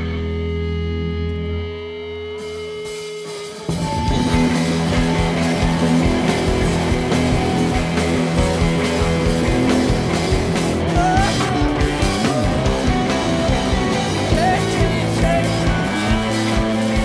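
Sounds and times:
bass guitar: 0.0 - 17.0
drums: 0.0 - 17.0
electric guitars: 0.0 - 17.0.

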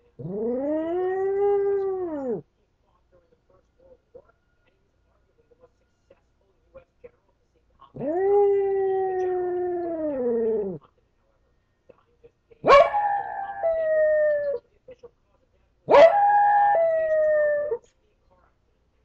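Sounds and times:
dog howling: 0.2 - 2.4, 8.0 - 10.8, 12.7 - 14.6, 15.9 - 17.8.

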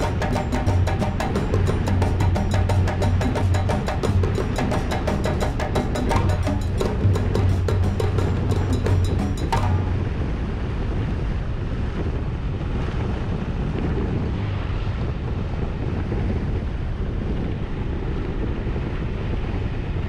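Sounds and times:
percussive music: 0.0 - 10.2
wind rushing over microphone: 0.0 - 20.0.

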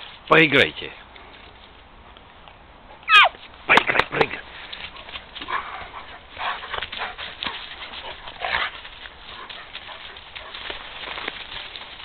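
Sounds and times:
dogs play-fighting: 4.7 - 11.4.

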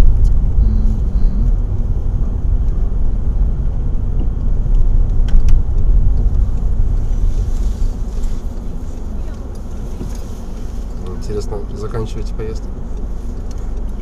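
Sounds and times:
car cabin road and engine rumble: 0.0 - 14.0.

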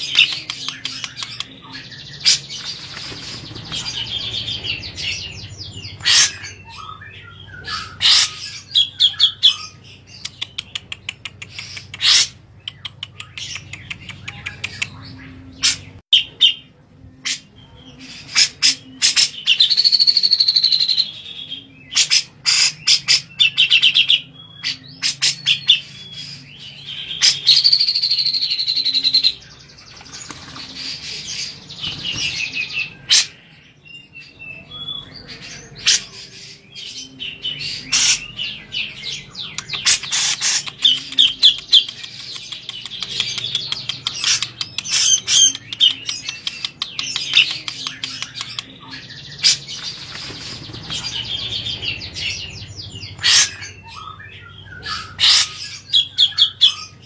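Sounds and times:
bird chirps and clicking notes: 0.0 - 6.2, 7.6 - 16.0, 39.4 - 56.8.

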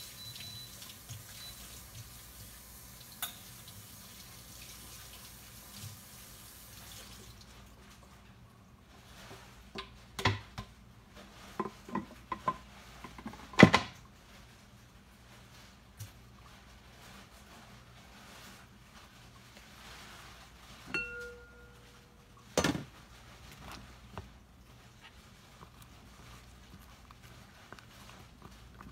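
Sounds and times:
running water: 0.0 - 8.1
dishes and utensils clinking: 3.2 - 3.5, 20.8 - 22.9.

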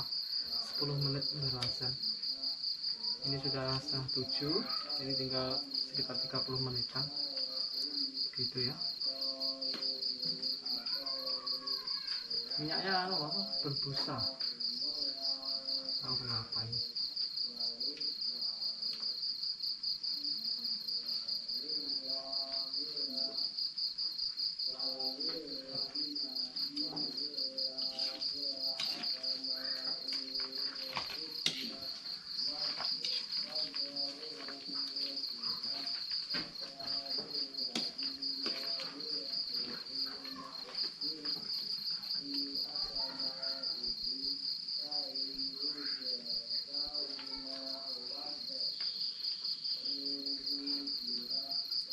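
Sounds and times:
crickets chirping: 0.0 - 51.9
distant voice chanting: 6.9 - 16.3, 24.7 - 49.2.

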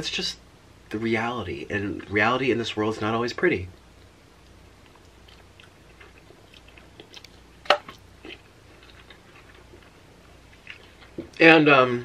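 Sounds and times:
chewing food: 4.0 - 11.4.

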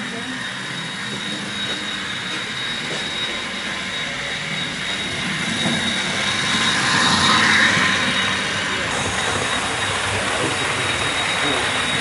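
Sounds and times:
model train motor whine: 0.0 - 12.0.

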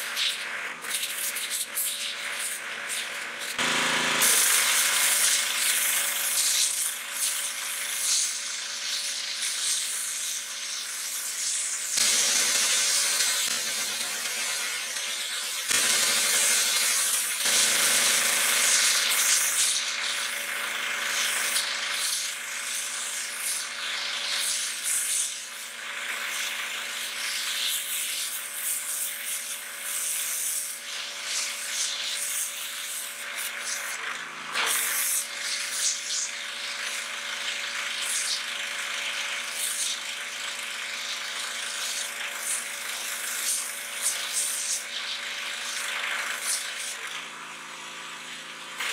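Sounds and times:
washer motor humming: 0.0 - 10.0, 11.0 - 28.6, 30.8 - 48.9
pressure washer jet spattering: 0.1 - 25.3.

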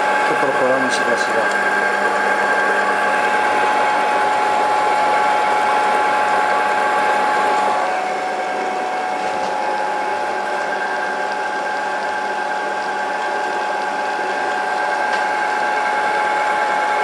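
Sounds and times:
milling machine whine: 0.0 - 17.0.

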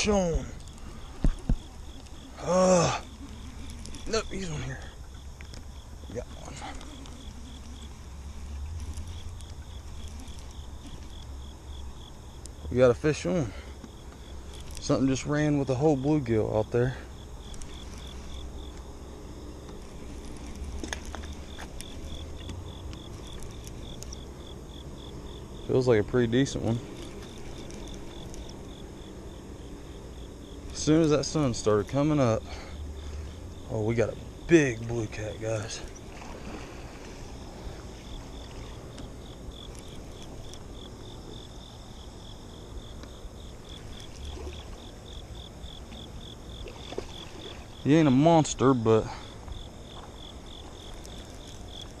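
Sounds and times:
crickets chirping: 0.0 - 52.0.

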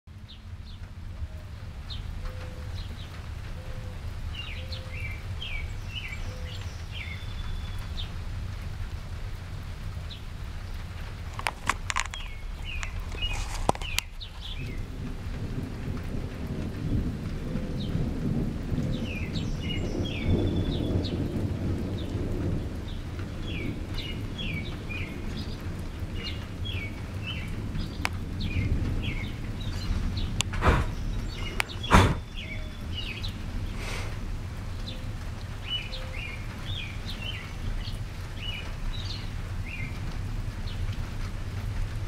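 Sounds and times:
small birds chirping: 1.8 - 8.2, 9.9 - 15.4, 18.8 - 21.3, 21.9 - 41.0
low roll of thunder: 14.2 - 42.0.

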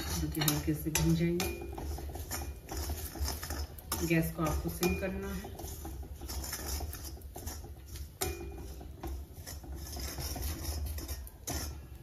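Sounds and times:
metal spoon scraping a pan: 0.0 - 12.0
spoon knocking against pan: 0.3 - 3.0, 3.8 - 10.5.

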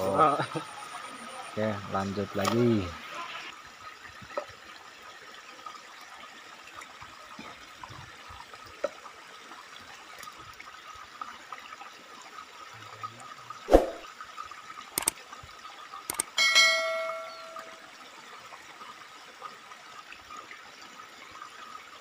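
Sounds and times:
running river water: 0.0 - 22.0
sharp thump: 13.7 - 14.0.

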